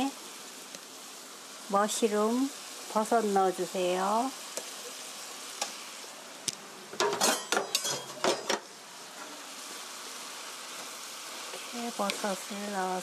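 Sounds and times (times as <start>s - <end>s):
food sizzling in a frying pan: 0.0s - 13.0s
clatter and scraping against pan: 7.0s - 9.4s.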